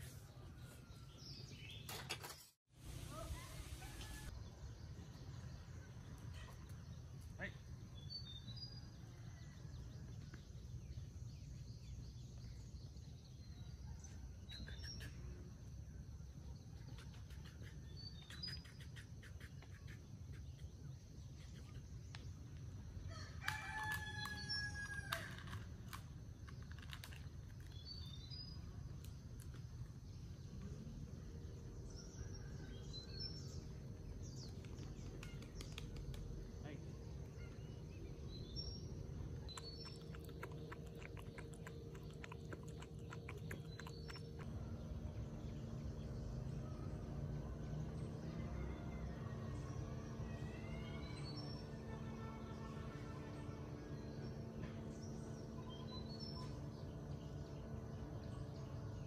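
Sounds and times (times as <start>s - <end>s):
small birds chirping: 0.1s - 24.8s, 26.4s - 59.0s
rooster crowing: 23.1s - 25.4s.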